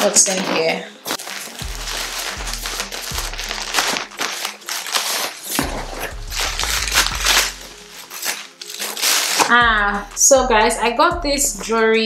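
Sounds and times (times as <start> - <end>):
plastic packaging crinkling: 0.0 - 9.6
background music with bass: 1.6 - 4.3, 5.5 - 8.2, 9.5 - 12.0.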